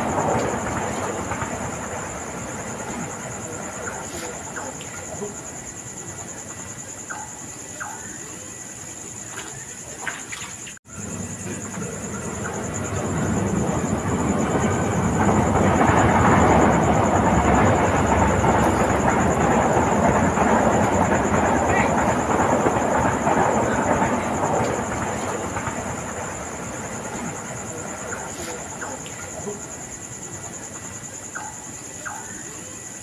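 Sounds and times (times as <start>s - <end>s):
loud rushing rumble: 10.9s - 28.8s.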